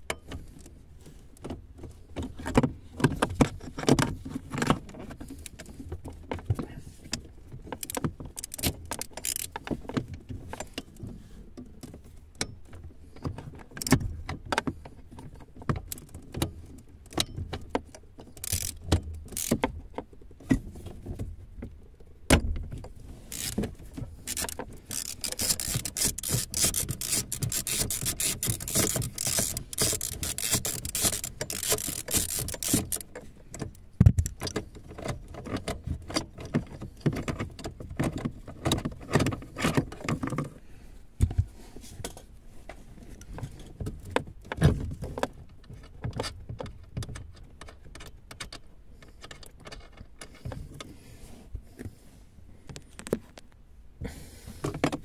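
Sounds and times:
fast run of clicks: 24.3s - 33.1s.

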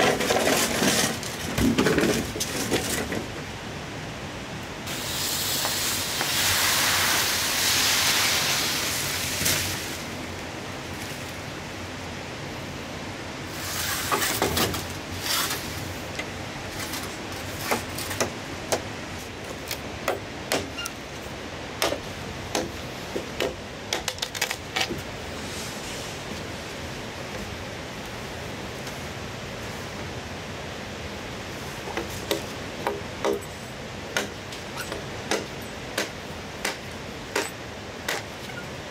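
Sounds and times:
river rushing: 3.2s - 24.0s, 24.6s - 38.9s
rustling hiss: 4.7s - 19.8s, 24.9s - 38.9s
machete chopping bamboo: 19.6s - 20.8s, 21.8s - 25.0s, 34.1s - 38.3s.

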